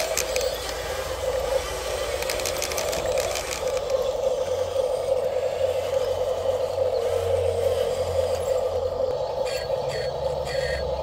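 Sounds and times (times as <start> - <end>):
rapid plastic clicking: 0.0 - 4.7
toy motor whining: 0.0 - 11.0.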